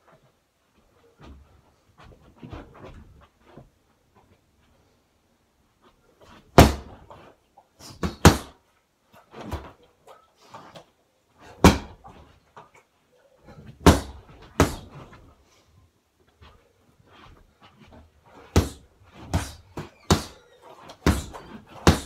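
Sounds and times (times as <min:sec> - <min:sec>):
punches thudding on punch bag: 0:06.6 - 0:07.0, 0:08.0 - 0:08.5, 0:11.6 - 0:12.0, 0:13.8 - 0:14.9, 0:18.5 - 0:20.4, 0:21.0 - 0:22.0.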